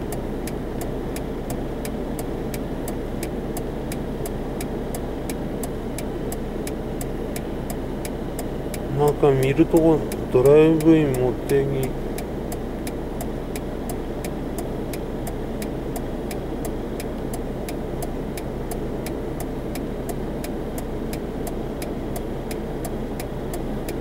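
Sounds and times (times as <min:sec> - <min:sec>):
engine and road rumble: 0:00.0 - 0:24.0
fast even ticking: 0:05.3 - 0:19.5.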